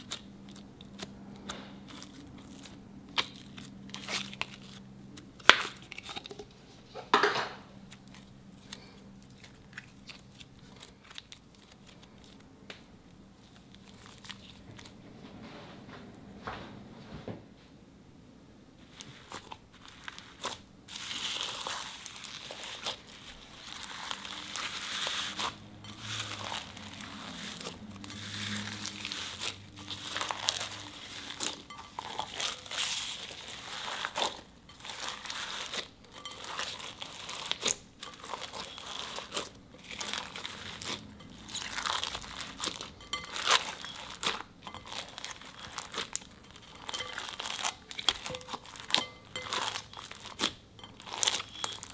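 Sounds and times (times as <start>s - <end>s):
squeezing crunchy bead slime: 0.0s - 6.1s, 18.9s - 51.9s.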